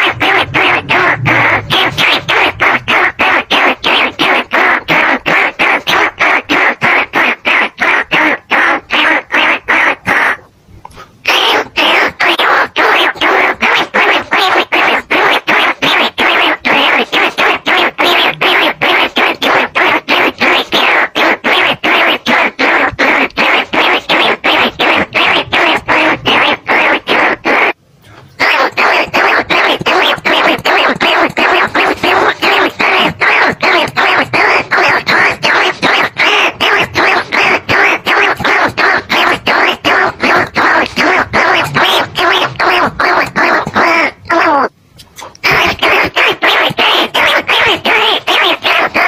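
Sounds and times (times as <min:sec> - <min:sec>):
rat squeaking chirps: 0:28.4 - 0:49.0.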